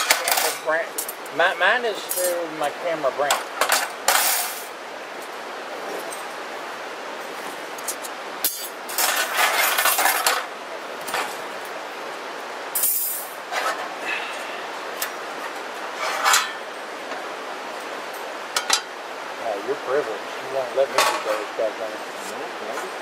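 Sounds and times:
metal grill parts clinking: 0.0 - 1.3, 2.0 - 2.4, 3.3 - 4.7, 7.8 - 11.4, 12.8 - 13.8, 15.0 - 16.7, 18.5 - 18.9, 20.9 - 21.5.

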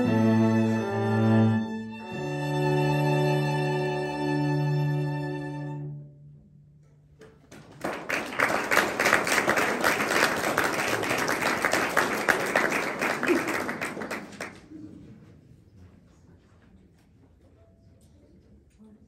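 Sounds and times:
audience applause: 7.5 - 14.9.

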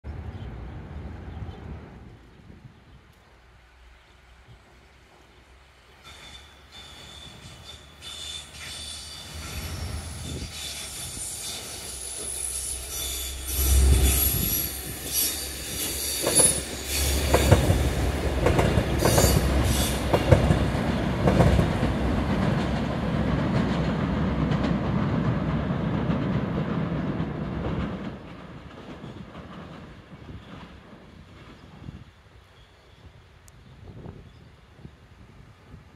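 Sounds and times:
train wheels squealing: 6.0 - 17.9, 19.0 - 20.2, 31.4 - 33.3
wheels clicking over rail joints: 15.8 - 31.7.

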